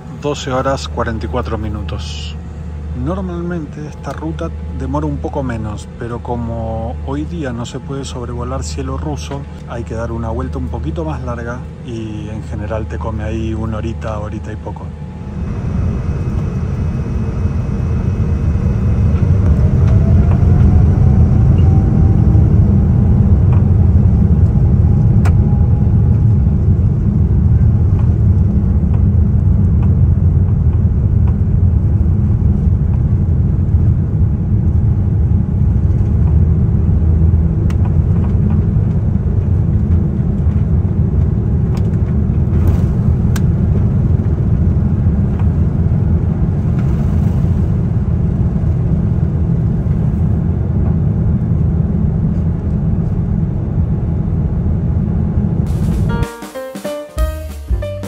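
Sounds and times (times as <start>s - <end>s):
jet engines and runway rumble: 0.0s - 56.2s.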